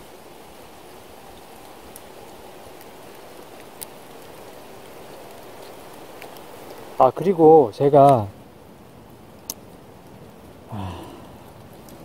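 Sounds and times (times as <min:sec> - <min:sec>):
wind rustling trees and leaves: 0:00.0 - 0:12.0
faint ticks: 0:09.4 - 0:09.7.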